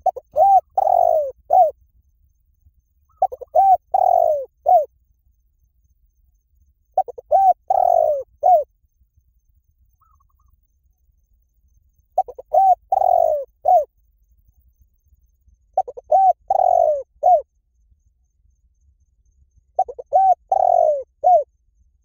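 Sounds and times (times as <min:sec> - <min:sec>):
dove cooing: 0:00.0 - 0:01.8, 0:03.1 - 0:04.9, 0:07.0 - 0:08.7, 0:12.2 - 0:13.9, 0:15.8 - 0:17.4, 0:19.8 - 0:21.5.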